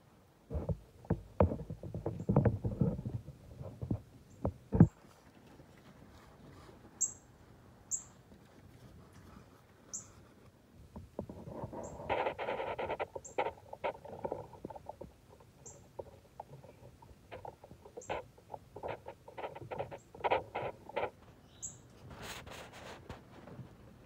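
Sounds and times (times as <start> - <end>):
bird chipping: 7.0 - 7.2, 7.9 - 8.2, 12.8 - 13.6, 15.6 - 16.1, 21.4 - 21.9
brief rustle: 21.9 - 23.8.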